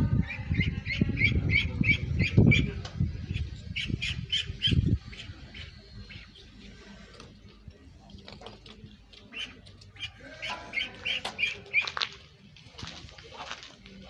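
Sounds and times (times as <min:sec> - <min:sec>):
duckling peeping: 0:00.2 - 0:07.3, 0:08.9 - 0:12.2.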